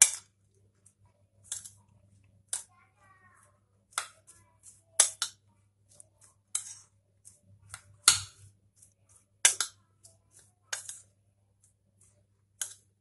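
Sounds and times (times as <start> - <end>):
metal spoon scraping ceramic bowl: 6.5 - 11.1.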